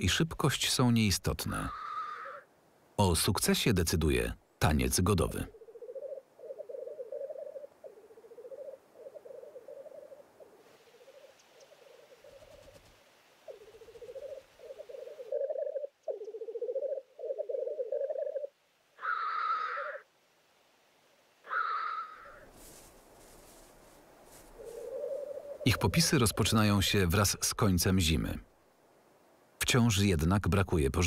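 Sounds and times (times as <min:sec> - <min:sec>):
black grouse hissing calls: 0:01.6 - 0:02.5, 0:05.5 - 0:12.8, 0:13.4 - 0:20.1, 0:21.4 - 0:22.5, 0:24.4 - 0:26.4
black grouse bubbling cooing song: 0:05.5 - 0:12.8, 0:13.4 - 0:20.0, 0:24.4 - 0:26.6.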